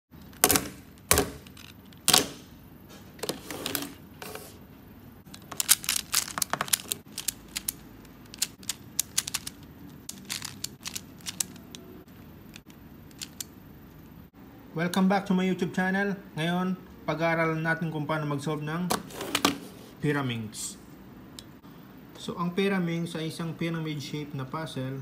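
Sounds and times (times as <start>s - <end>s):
plastic puzzle clicking: 5.3s - 11.8s, 13.1s - 13.5s.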